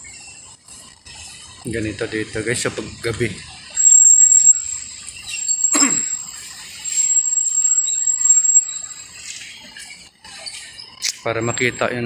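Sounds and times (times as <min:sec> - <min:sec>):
high-pitched whistle-like tone: 0:03.8 - 0:09.9.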